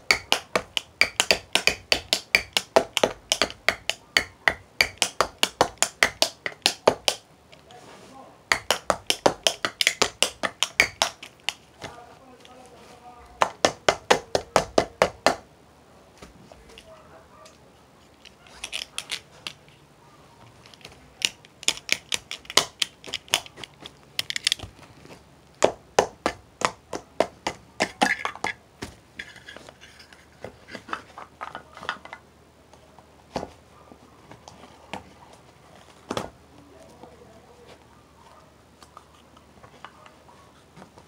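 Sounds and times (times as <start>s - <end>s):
drumming on household objects: 0.0s - 7.2s, 8.5s - 11.6s, 13.4s - 15.4s.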